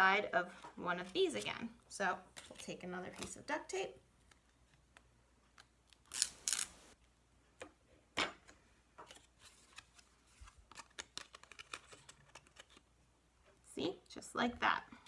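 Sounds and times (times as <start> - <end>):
duct tape ripping: 5.9 - 6.9.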